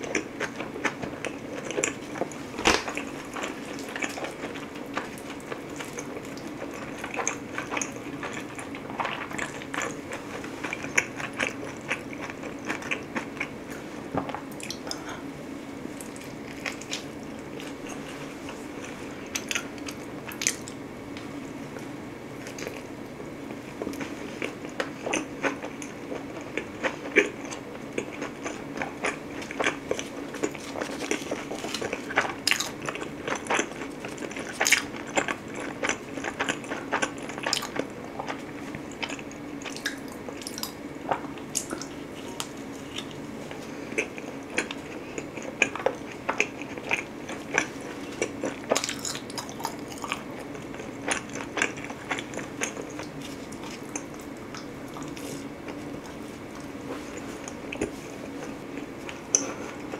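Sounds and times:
steady low hum: 0.0s - 59.9s
pizza crust crunching: 23.7s - 59.9s.

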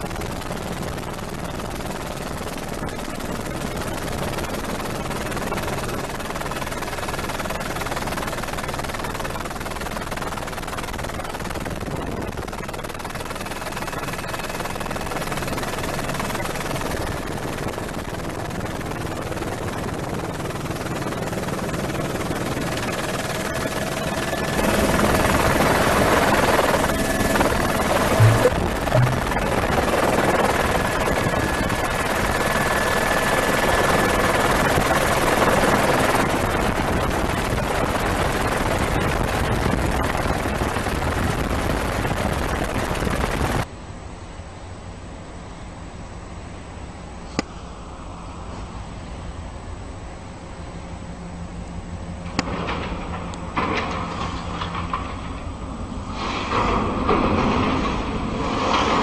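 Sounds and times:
helicopter engine and rotor roar: 0.0s - 43.7s
low thuds: 28.2s - 29.8s.

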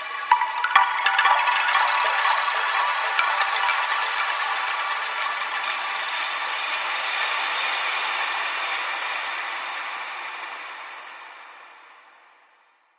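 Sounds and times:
chime ringtone: 0.3s - 6.2s.

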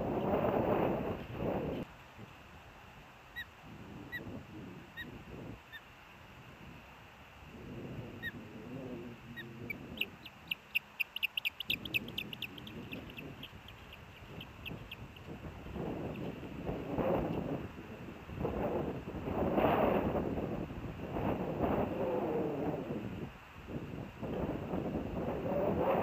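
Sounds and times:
osprey whistled chirps: 9.4s - 15.0s.

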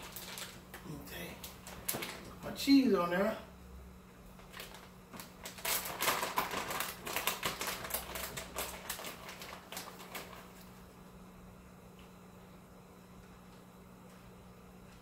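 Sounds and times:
plastic package crinkling: 0.0s - 2.5s, 4.4s - 10.8s.

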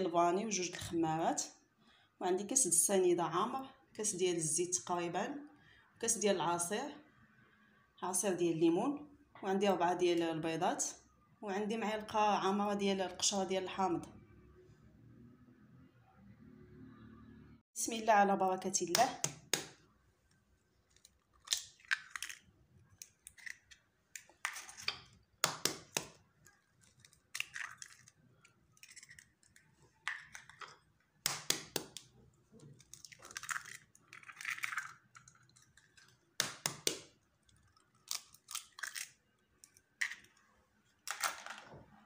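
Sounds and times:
eggshells cracking against glass: 20.9s - 40.4s
eggshells crackling apart: 21.0s - 24.7s, 26.7s - 30.6s, 32.8s - 36.6s, 37.4s - 39.2s.

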